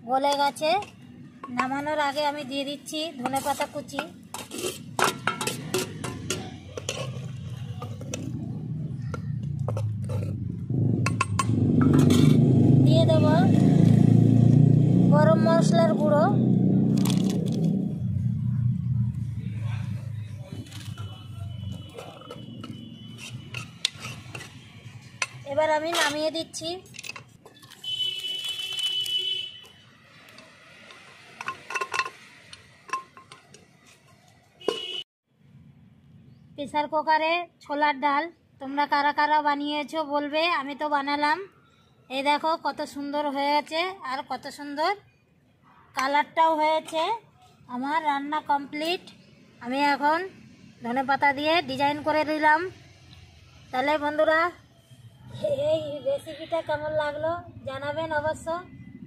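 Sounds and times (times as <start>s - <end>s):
metal ladle scraping pot: 3.1s - 12.6s, 20.6s - 27.8s, 30.4s - 35.0s.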